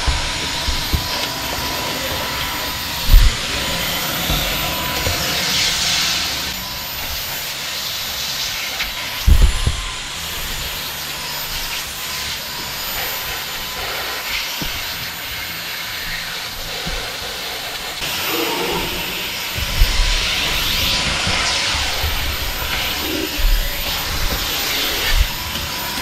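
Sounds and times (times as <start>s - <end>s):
low thumps: 0.0s - 6.0s, 18.0s - 25.6s
vacuum cleaner suction hiss: 0.0s - 26.0s.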